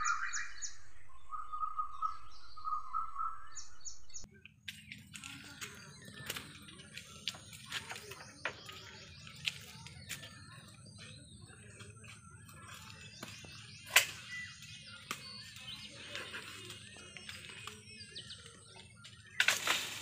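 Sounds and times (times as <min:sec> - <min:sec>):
birds chirping: 0:00.0 - 0:20.0
pole knocking among branches: 0:19.4 - 0:20.0.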